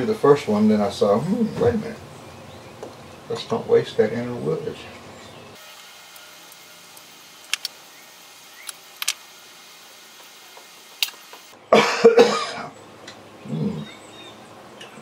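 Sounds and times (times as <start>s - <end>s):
man coughing: 11.7s - 12.7s.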